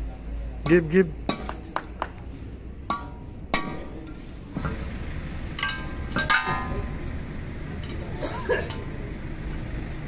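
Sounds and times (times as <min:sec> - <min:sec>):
metal tools clinking: 0:05.5 - 0:07.0, 0:07.8 - 0:08.9.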